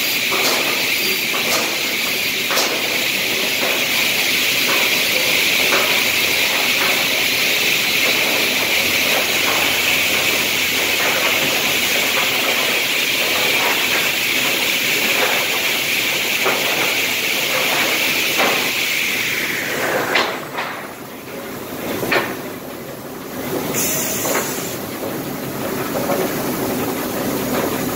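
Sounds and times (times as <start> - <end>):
circular saw whirring hiss: 17.9 - 20.5, 23.7 - 24.8.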